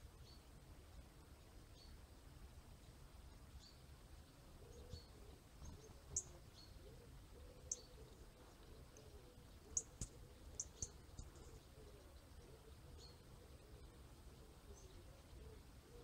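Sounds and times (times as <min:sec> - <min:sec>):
high bird chirps: 0:09.7 - 0:11.6.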